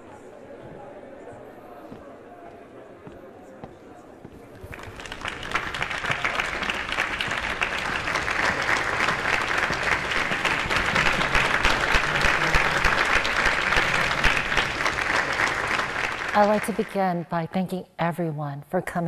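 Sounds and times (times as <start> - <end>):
audience applauding: 4.5 - 17.0.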